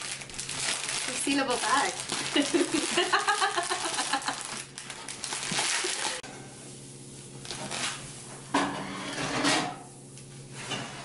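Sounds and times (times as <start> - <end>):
foil tinsel rustling: 0.0 - 6.2
plastic bag crinkling: 0.0 - 6.2.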